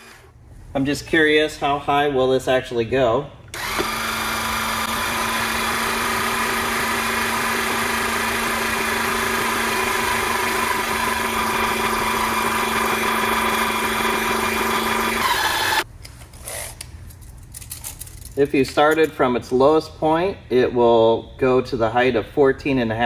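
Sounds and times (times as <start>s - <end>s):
electric jack motor humming: 0.0s - 0.3s, 3.5s - 15.8s.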